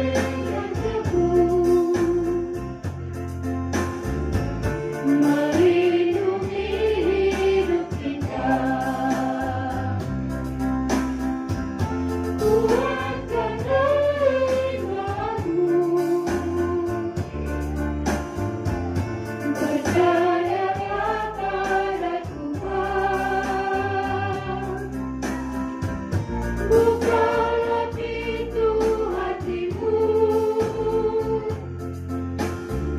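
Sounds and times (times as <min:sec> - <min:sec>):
mixed choir singing: 0:00.0 - 0:02.5, 0:05.0 - 0:10.2, 0:12.4 - 0:17.2, 0:19.4 - 0:25.0, 0:26.7 - 0:31.7
keyboard sustained low chords: 0:00.0 - 0:32.9.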